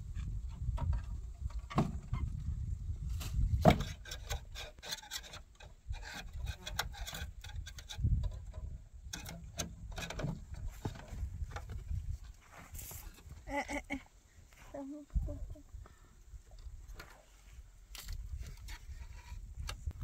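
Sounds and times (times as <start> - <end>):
wooden slats knocking and scraping: 0.1 - 2.5, 3.1 - 12.4.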